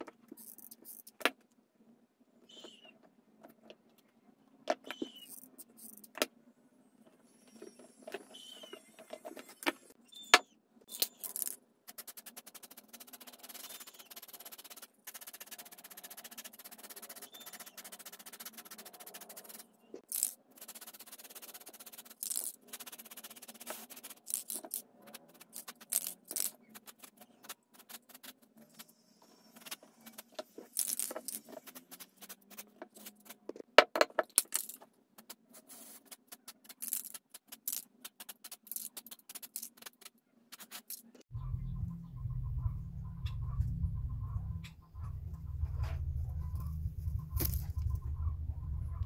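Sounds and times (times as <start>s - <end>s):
low steady rumble: 41.3s - 49.0s.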